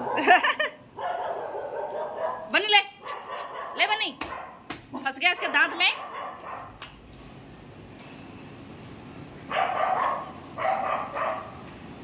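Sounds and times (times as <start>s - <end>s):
dog barking: 0.0s - 6.8s, 9.5s - 11.6s.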